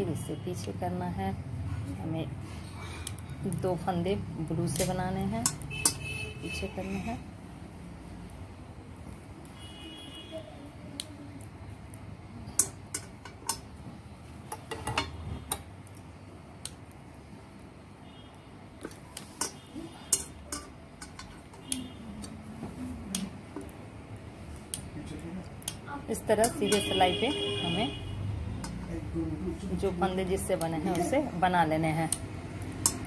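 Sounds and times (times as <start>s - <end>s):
metal knitting needles clicking: 4.7s - 6.0s, 12.5s - 13.7s, 18.8s - 22.4s, 28.6s - 28.9s, 30.4s - 33.0s.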